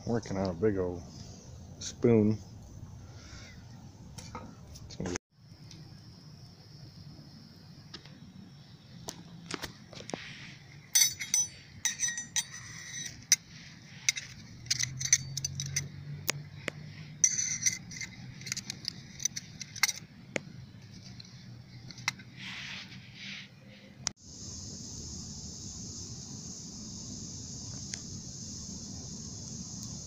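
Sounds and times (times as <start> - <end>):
metal cutlery clinking: 14.8 - 15.9.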